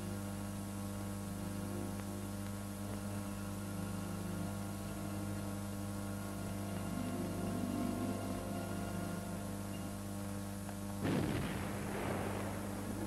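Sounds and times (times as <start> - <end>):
electrical mains hum: 0.0 - 13.0
film soundtrack hiss: 0.0 - 13.0.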